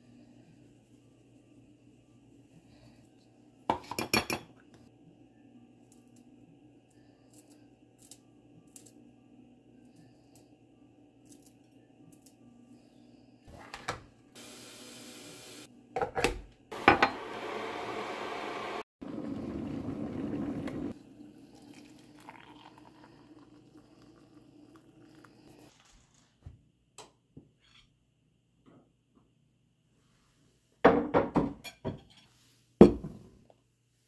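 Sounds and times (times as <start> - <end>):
dishes and utensils clinking: 3.7 - 4.6.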